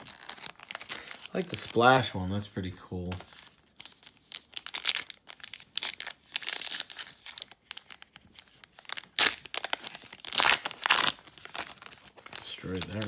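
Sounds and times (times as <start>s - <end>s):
foil wrapper crinkling: 0.0s - 2.0s, 3.4s - 13.0s
foil wrapper ripping: 0.0s - 2.0s, 3.8s - 13.0s.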